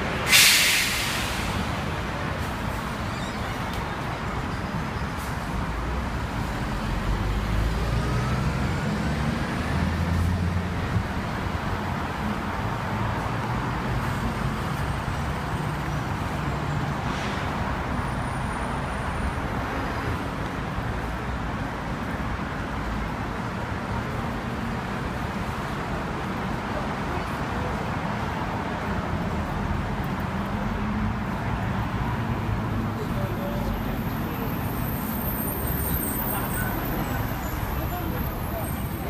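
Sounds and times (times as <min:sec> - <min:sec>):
city street traffic: 0:00.0 - 0:39.0.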